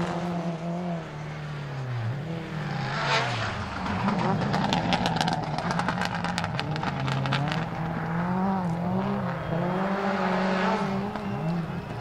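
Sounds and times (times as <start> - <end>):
car engine revving: 0.0 - 12.0
exhaust pops and crackles: 3.8 - 8.0.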